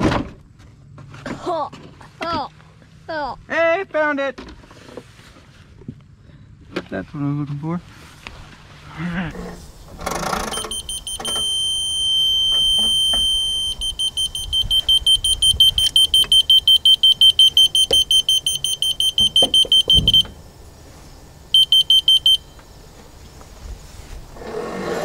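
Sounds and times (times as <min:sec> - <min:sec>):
electronic beeper: 0:10.5 - 0:20.4, 0:21.5 - 0:22.6.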